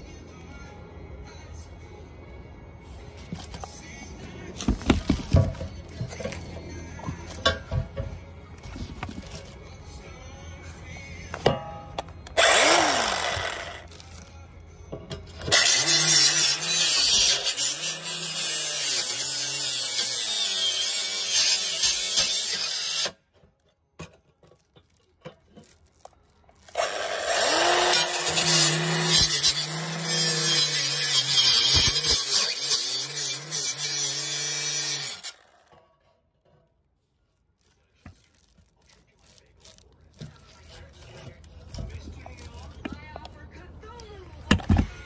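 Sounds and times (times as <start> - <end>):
circular saw cutting: 12.4 - 13.9, 15.4 - 23.2, 26.7 - 35.8.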